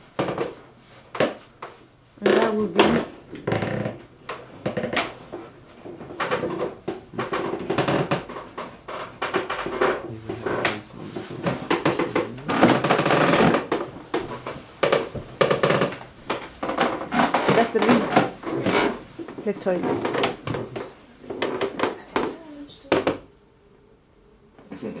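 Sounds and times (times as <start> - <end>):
knocks and handling clatter: 4.3 - 23.2.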